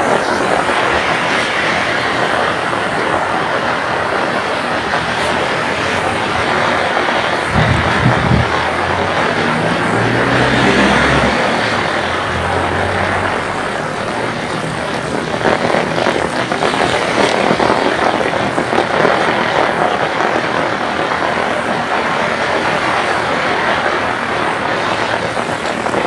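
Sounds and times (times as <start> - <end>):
heavy rain falling: 0.0 - 26.0
low hum: 7.5 - 15.2.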